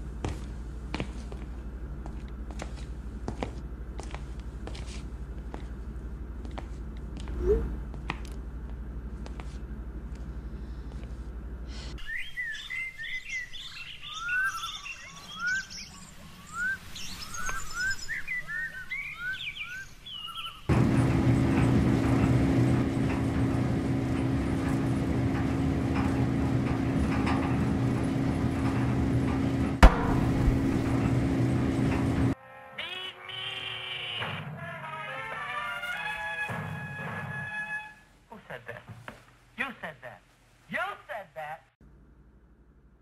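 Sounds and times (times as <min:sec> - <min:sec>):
birds chirping: 0:12.0 - 0:32.4
laundry machine humming: 0:20.7 - 0:32.4.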